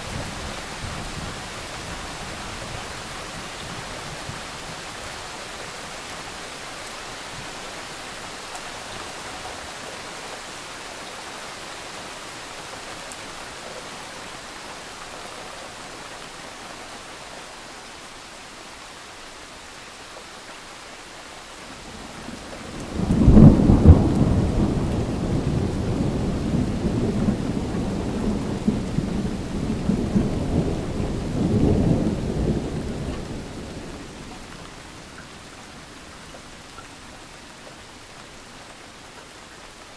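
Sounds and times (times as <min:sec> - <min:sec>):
rain hiss: 0:00.0 - 0:39.9
thunderclap rolling rumble: 0:22.4 - 0:34.2.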